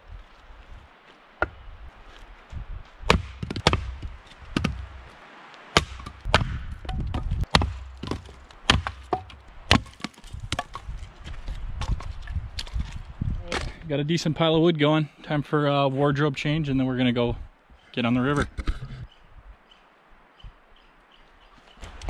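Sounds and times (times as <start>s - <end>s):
hatchet chopping firewood: 3.1s - 5.1s, 5.8s - 11.0s.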